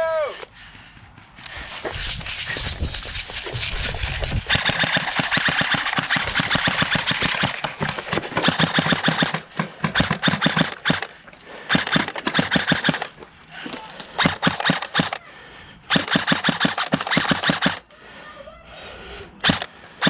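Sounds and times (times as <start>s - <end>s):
wind on microphone: 1.5s - 4.8s
airsoft rifles firing rapid volleys: 1.6s - 13.2s, 14.2s - 15.2s, 15.9s - 17.9s, 19.4s - 19.7s.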